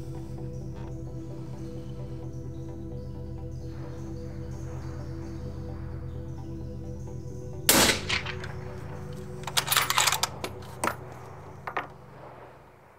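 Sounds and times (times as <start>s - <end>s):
background music: 0.0s - 12.9s
rifle shot with echo: 7.7s - 10.5s
sharp metallic clicks: 7.7s - 12.0s.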